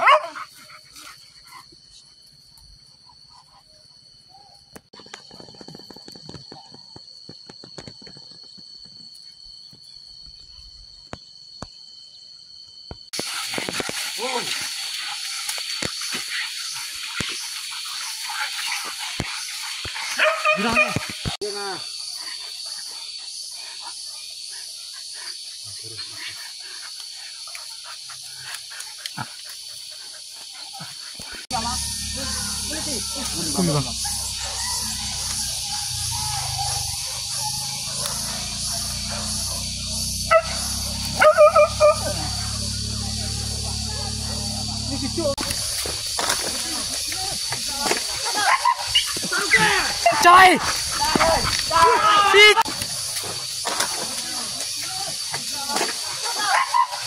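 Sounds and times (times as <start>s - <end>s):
high-pitched insect drone: 0.0s - 57.0s
dogs vocalising excitedly: 13.2s - 31.5s, 32.3s - 57.0s
dogs growling: 33.2s - 50.0s, 50.6s - 52.0s.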